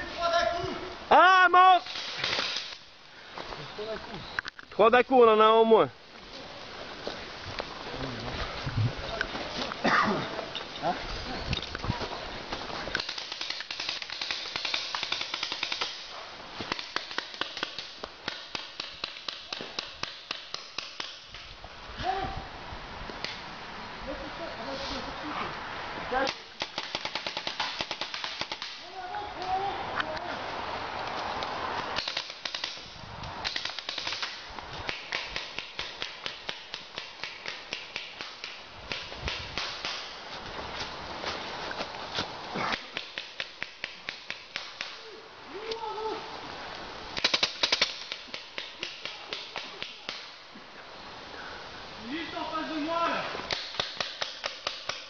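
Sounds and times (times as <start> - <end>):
paintball markers firing: 13.0 - 16.0, 16.6 - 21.3, 26.3 - 28.8, 32.0 - 40.1, 42.7 - 45.0, 47.2 - 50.3, 53.5 - 55.0.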